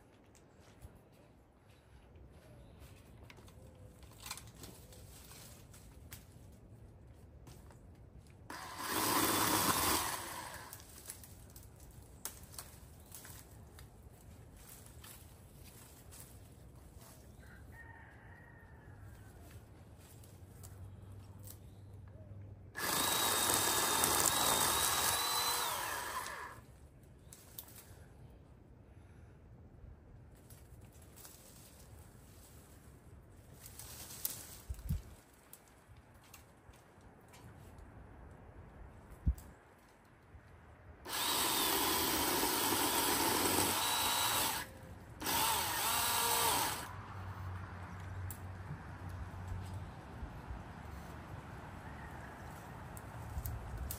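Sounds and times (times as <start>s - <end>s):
electric saw motor whining: 8.5s - 10.7s, 22.8s - 26.6s, 41.1s - 46.9s.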